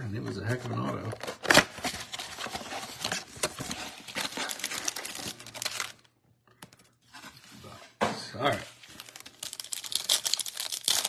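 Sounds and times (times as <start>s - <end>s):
cardboard and foil tearing: 1.2s - 6.1s, 8.7s - 11.0s.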